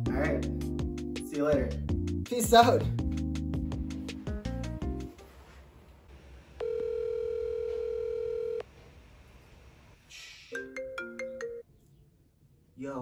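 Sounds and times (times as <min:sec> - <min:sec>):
melodic phone ringtone: 0:06.6 - 0:08.6
phone ringback beep: 0:06.6 - 0:08.6.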